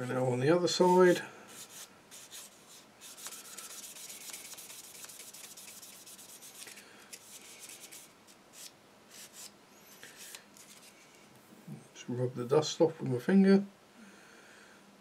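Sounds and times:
sponge sander scratching plastic: 1.6 - 8.1.

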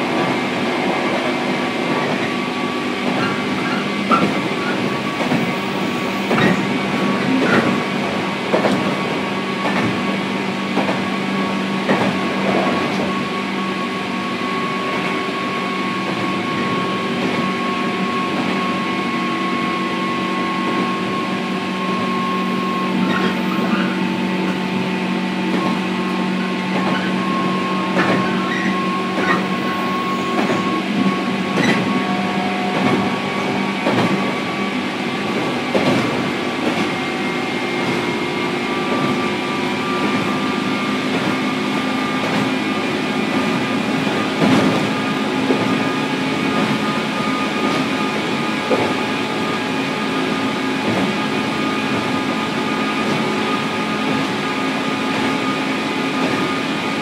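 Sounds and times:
train motor hum: 0.0 - 57.0
wheels rumbling on rails: 0.0 - 57.0
rail joint clacks: 0.1 - 13.4, 20.6 - 52.4.

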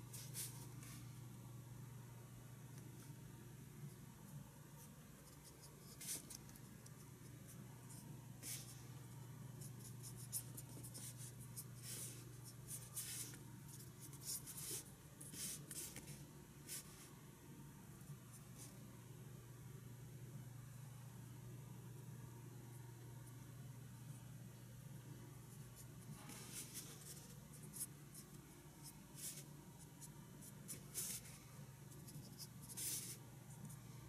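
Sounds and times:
faint low hum: 0.0 - 34.0
brush pens scratching on paper: 4.8 - 8.8, 9.6 - 17.1, 25.5 - 33.8.

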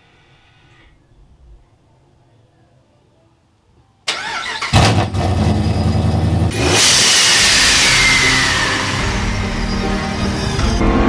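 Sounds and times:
engine running: 4.7 - 11.0
rushing sound effect with falling whine: 6.7 - 11.0.

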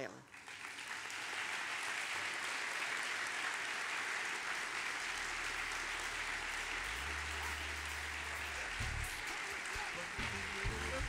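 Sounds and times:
audience applauding: 0.2 - 11.0
low bass tones: 5.6 - 9.2, 10.2 - 11.0.

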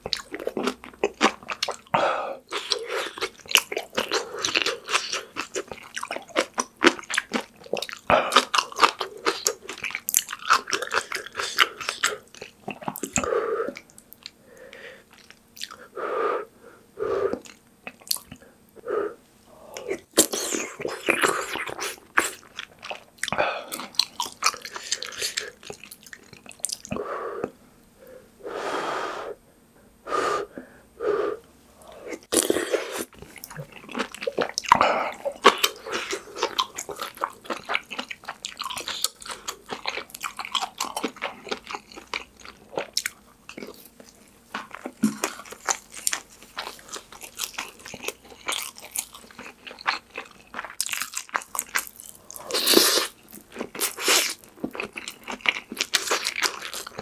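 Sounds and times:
person chewing food: 0.0 - 15.9, 17.3 - 18.6, 19.6 - 27.6, 31.8 - 57.0
crunching kimchi: 32.2 - 57.0.

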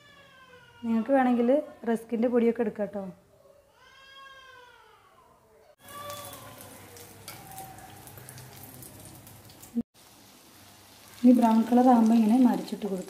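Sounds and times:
food sizzling in hot oil: 5.8 - 13.0.

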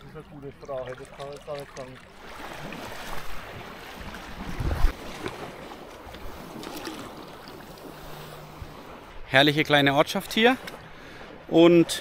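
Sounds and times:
paddle strokes in water: 0.0 - 9.3
water splashing around board: 0.0 - 12.0
wind rumbling on microphone: 2.2 - 9.3.

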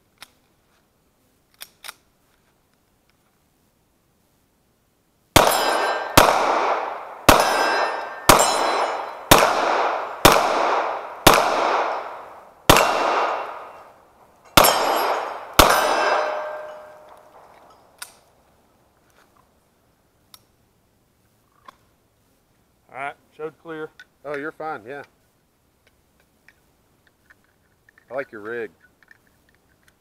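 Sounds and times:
pistol shots: 5.4 - 17.7
metallic ringing of steel targets: 5.4 - 17.9.

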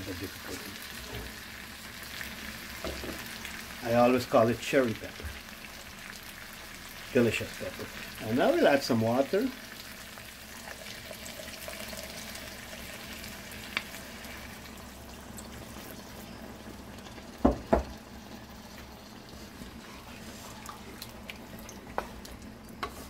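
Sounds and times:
curry sizzling: 0.0 - 23.0.

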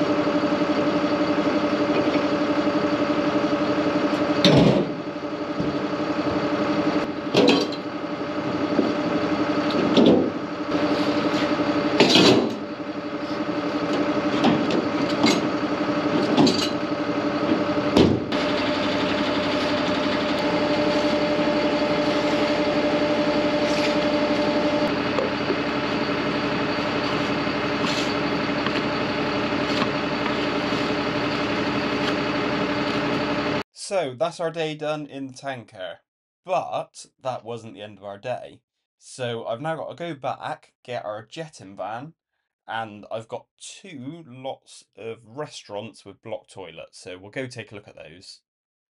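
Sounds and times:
tanker engine humming: 0.0 - 33.6
knocks and clanks of hoses: 4.1 - 5.0, 7.2 - 7.9, 8.5 - 12.7, 13.8 - 24.4.

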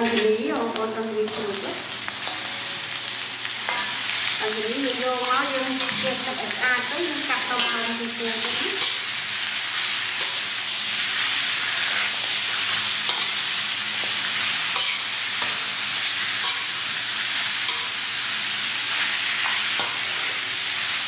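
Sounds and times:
meat sizzling in a wok: 0.0 - 21.0
metal spatula scraping: 3.6 - 4.1, 11.2 - 15.7
spatula clinking against pan: 14.8 - 15.6.

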